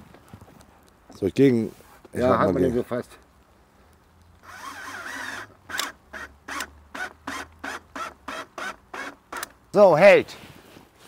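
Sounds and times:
cordless drill whirring: 4.4 - 9.5
screw squeaking into wood: 4.4 - 9.5.

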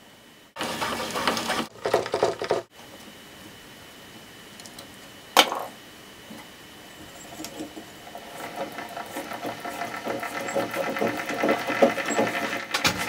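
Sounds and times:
treadle sewing machine clattering: 7.5 - 13.0.

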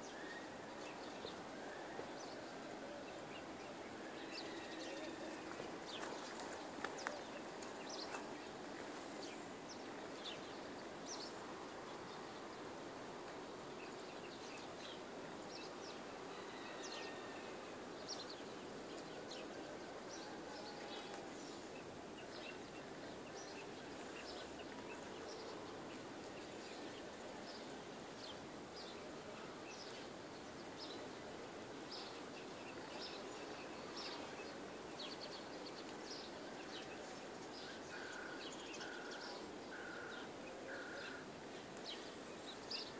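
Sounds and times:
steady background hiss: 0.0 - 42.9
small birds chirping: 31.8 - 42.9.

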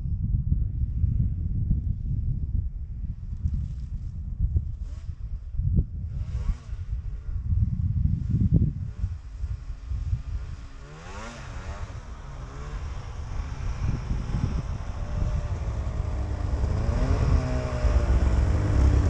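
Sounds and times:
snowmobile engines rumbling: 6.2 - 19.0
snowmobile engine revving: 8.9 - 19.0.

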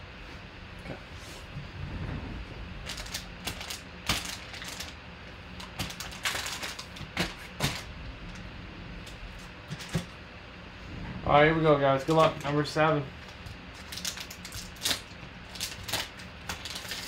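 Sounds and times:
foil wrappers crinkling: 2.8 - 5.0, 5.6 - 7.9, 12.0 - 17.0.

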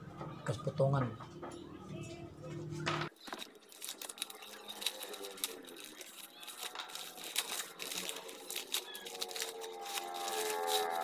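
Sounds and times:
paper wrapping crinkling and tearing: 3.1 - 11.0.

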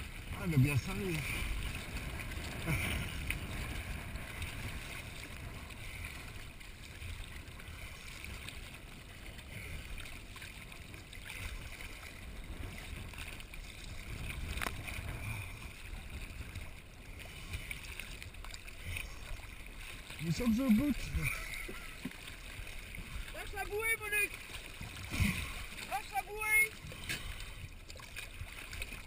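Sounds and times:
sea water sloshing and splashing: 0.0 - 29.0.

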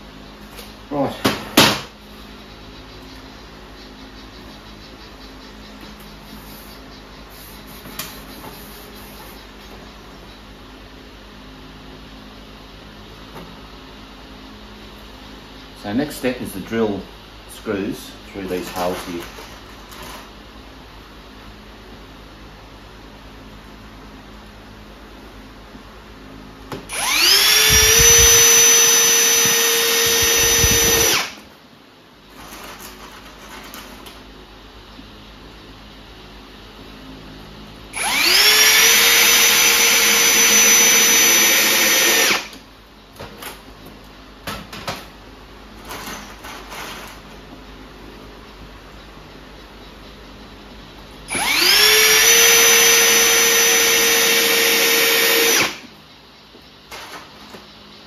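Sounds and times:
cordless drill driving a screw: 26.9 - 31.4, 38.0 - 42.6, 51.3 - 55.8.

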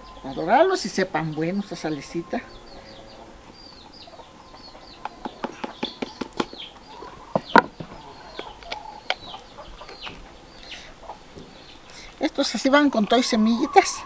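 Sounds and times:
small birds chirping: 0.0 - 14.0
chile being split by hand: 7.5 - 10.2.

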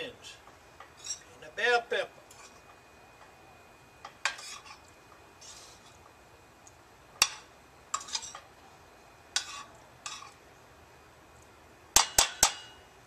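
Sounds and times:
spoon scraping skillet: 0.4 - 1.4, 2.2 - 2.8, 4.0 - 6.2, 7.2 - 8.6, 9.3 - 10.4
spoon clinking on metal skillet: 4.0 - 4.9, 7.2 - 8.5, 9.4 - 10.4, 12.0 - 12.8.

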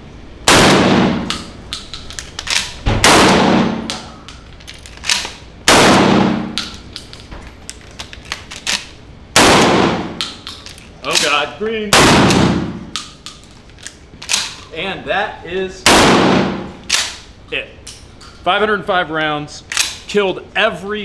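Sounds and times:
shotgun blasts ringing indoors: 0.4 - 1.7, 2.4 - 4.3, 5.0 - 6.8, 8.7 - 10.5, 11.9 - 13.3, 15.8 - 17.3.

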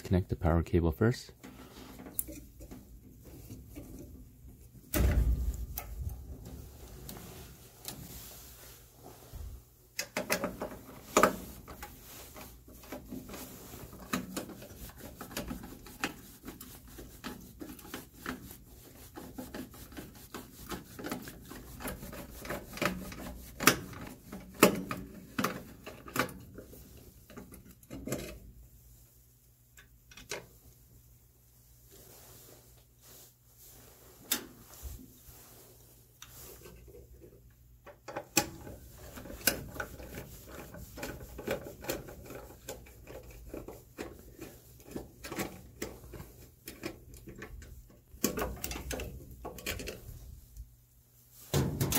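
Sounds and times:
rubbing and rustling of wires: 1.4 - 51.9
dull thump: 5.0 - 5.7.

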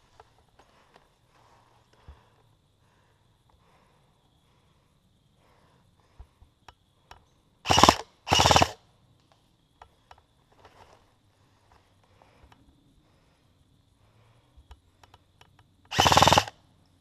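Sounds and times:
airsoft rifle bursts: 7.7 - 8.8, 15.9 - 16.6.

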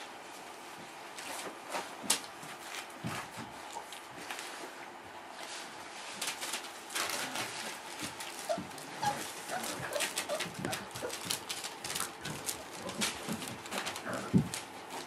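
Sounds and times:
paper rustling under paws: 0.0 - 15.0
puppy whimpering: 8.3 - 11.4.

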